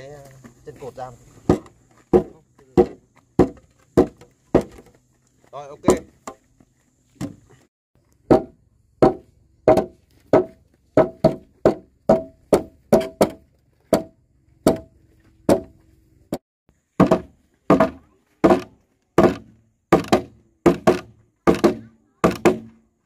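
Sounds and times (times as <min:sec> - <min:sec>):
hammer striking timber: 0:01.4 - 0:04.9, 0:05.8 - 0:06.4, 0:08.2 - 0:16.4, 0:17.0 - 0:22.8.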